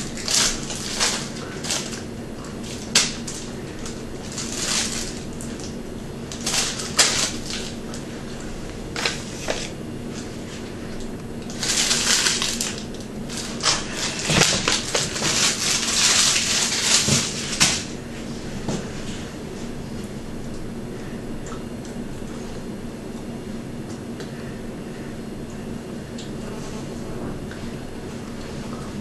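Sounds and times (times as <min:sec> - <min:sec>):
plastic bag crinkling: 0:00.0 - 0:08.1, 0:11.4 - 0:18.0
steady low hum: 0:00.0 - 0:29.0.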